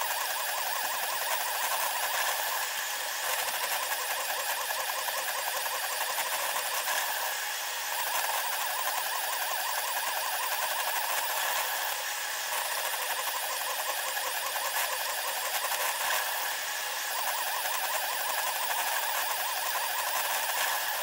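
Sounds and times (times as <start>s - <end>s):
printer motors whirring: 0.0s - 21.0s.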